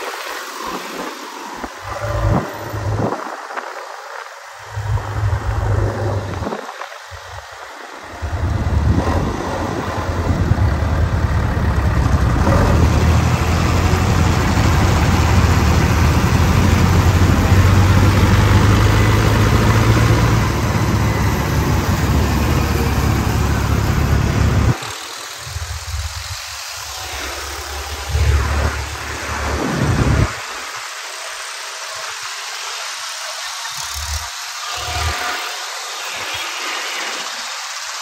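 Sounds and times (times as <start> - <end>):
tractor diesel engine running: 1.8 - 3.2, 4.6 - 6.6, 7.2 - 30.4.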